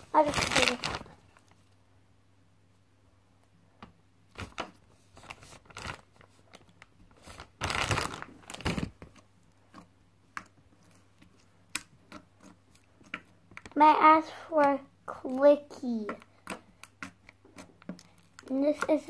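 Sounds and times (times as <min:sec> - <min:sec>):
plastic bag crinkling: 0:00.0 - 0:01.6, 0:04.3 - 0:09.2.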